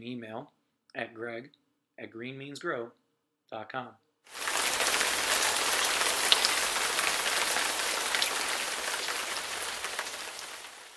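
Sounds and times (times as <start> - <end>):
steady rain falling: 4.3 - 10.9.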